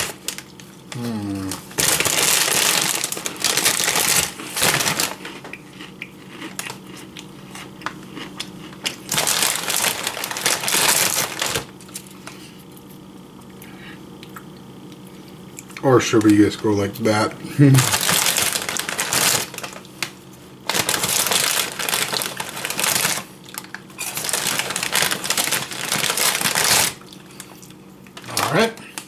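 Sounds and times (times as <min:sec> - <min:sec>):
snacks crunching by hand: 0:00.0 - 0:17.1, 0:17.7 - 0:29.0
small crackles: 0:08.9 - 0:12.4, 0:17.8 - 0:29.0.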